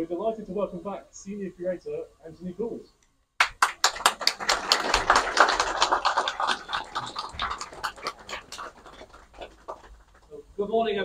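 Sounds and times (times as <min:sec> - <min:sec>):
crowd applauding: 0:03.4 - 0:10.4.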